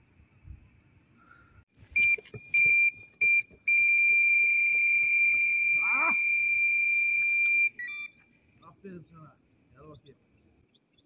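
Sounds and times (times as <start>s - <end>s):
birds chirping: 1.2s - 11.0s
bite alarm beeping: 1.9s - 8.2s.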